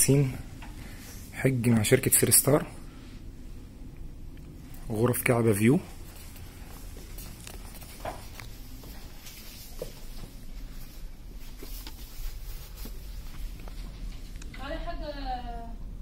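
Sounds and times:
low steady hum: 0:00.0 - 0:16.0
faint clicks and rustles: 0:05.9 - 0:15.0.

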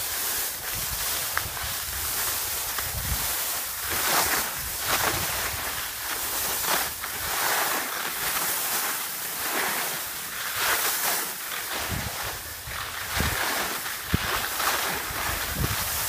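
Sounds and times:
wind rumbling on microphone: 0:00.0 - 0:07.4, 0:11.7 - 0:16.0
skis scraping over icy snow: 0:00.0 - 0:16.0.

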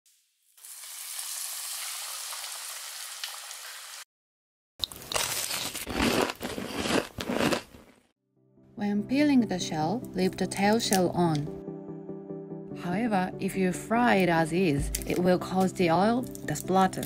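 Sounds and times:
shrimp sizzling in hot oil: 0:00.1 - 0:04.0
crisp crunches of fried crust: 0:04.8 - 0:08.0.

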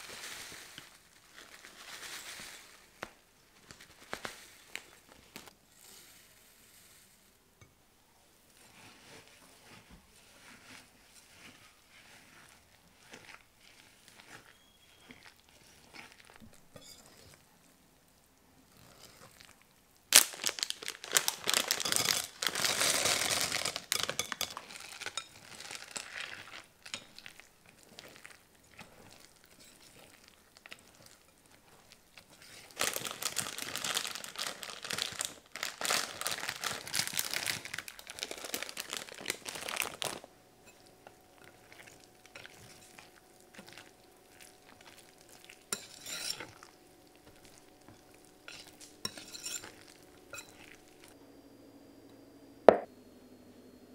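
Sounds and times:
whisk scraping glass bowl: 0:08.6 - 0:17.4, 0:24.2 - 0:33.1, 0:40.6 - 0:51.1.

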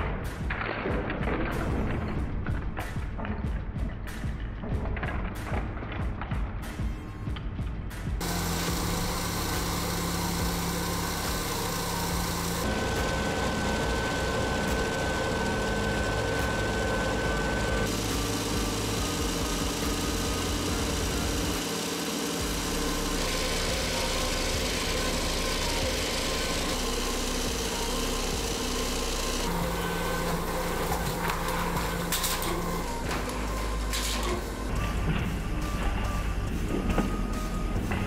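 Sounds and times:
treadmill whirring hum: 0:08.2 - 0:38.0.

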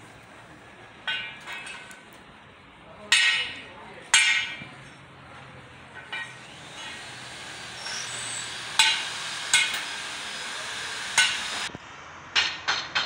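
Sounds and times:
sharp metallic taps and clinks: 0:06.0 - 0:07.1.

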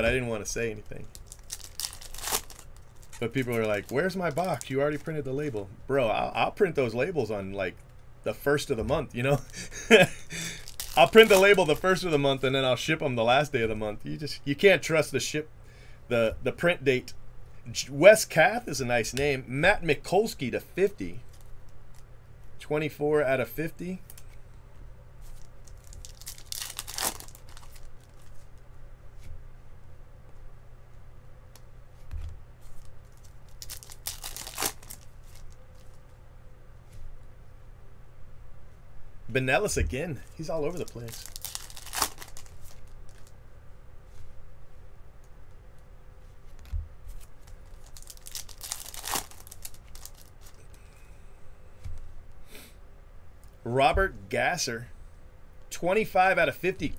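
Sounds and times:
foil wrapper tearing and crinkling: 0:01.0 - 0:05.2, 0:09.4 - 0:12.0, 0:25.4 - 0:28.4, 0:32.8 - 0:35.6, 0:40.7 - 0:43.3, 0:47.4 - 0:50.6.

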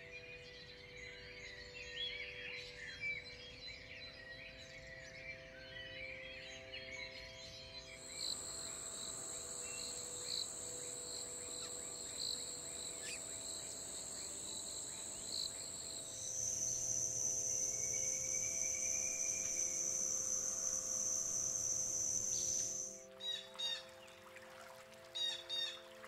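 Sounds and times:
high-pitched insect drone: 0:08.0 - 0:23.1
faint bird chirps: 0:08.0 - 0:23.9.

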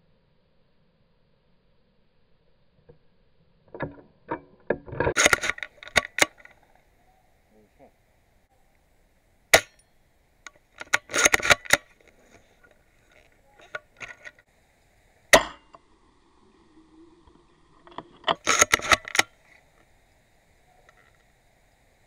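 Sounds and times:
airsoft rifle shots: 0:09.5 - 0:09.8.

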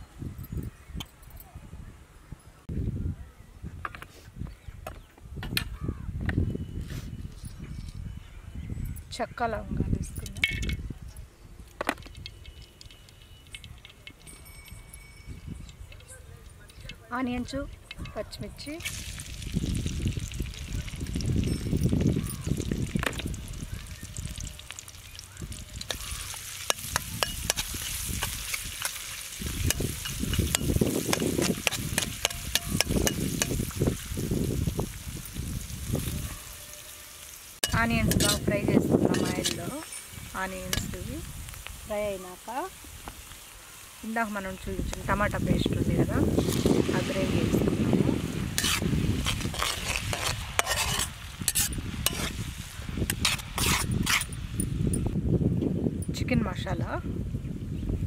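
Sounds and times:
onions sizzling in hot oil: 0:18.7 - 0:54.6
crackles and pops: 0:18.8 - 0:36.3, 0:39.3 - 0:42.1
spatula scraping a wok: 0:25.8 - 0:34.2, 0:35.9 - 0:41.0, 0:48.2 - 0:54.4
spatula scraping pan: 0:37.6 - 0:38.5, 0:39.1 - 0:41.0, 0:48.5 - 0:52.4, 0:53.1 - 0:54.4.

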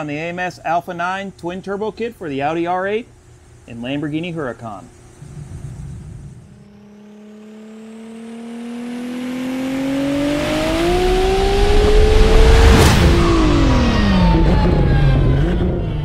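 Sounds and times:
car engine revving up: 0:05.2 - 0:16.0.

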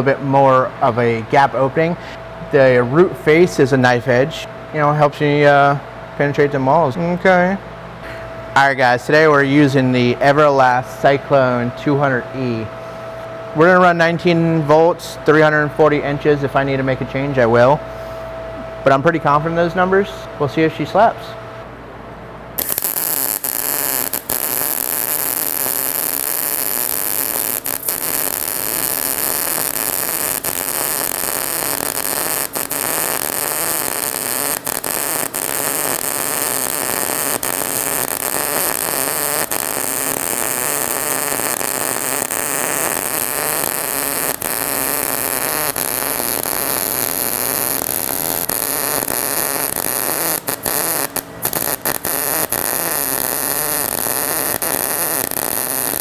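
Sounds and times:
welding arc sizzling: 0:22.6 - 0:56.0.

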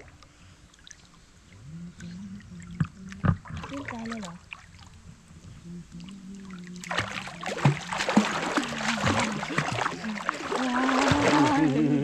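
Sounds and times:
water splashing in a stream: 0:02.0 - 0:05.0, 0:06.0 - 0:11.9.

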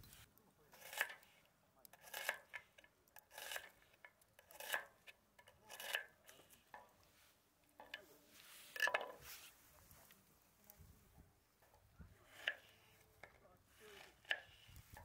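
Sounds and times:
knife cutting onion on wooden board: 0:00.0 - 0:06.7, 0:12.2 - 0:15.0.

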